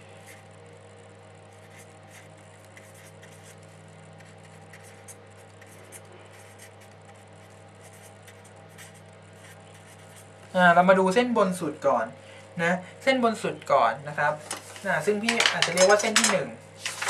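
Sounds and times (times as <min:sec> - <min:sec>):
low electrical hum: 0:00.0 - 0:17.0
marker scratching on paper: 0:01.5 - 0:03.6, 0:04.2 - 0:10.3.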